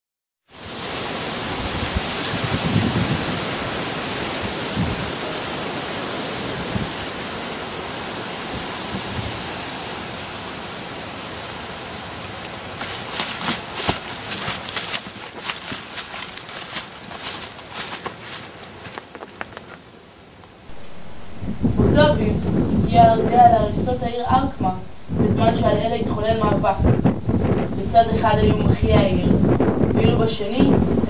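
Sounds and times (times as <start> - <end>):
steady rushing noise: 20.5 - 31.0
dull low thumps: 20.7 - 27.9.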